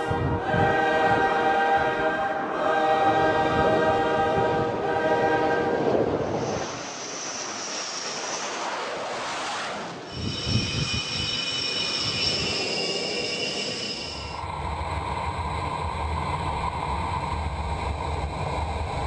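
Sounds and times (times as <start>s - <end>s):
jet engine rush with whine: 6.2s - 19.0s.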